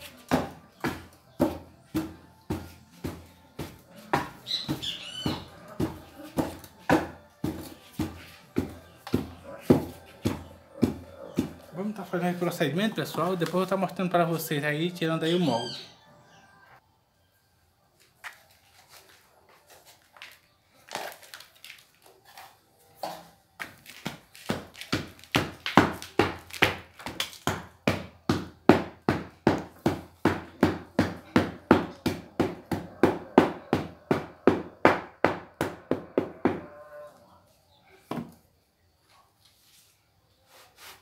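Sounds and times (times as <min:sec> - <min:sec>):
wood tamping clay: 0:00.0 - 0:13.8.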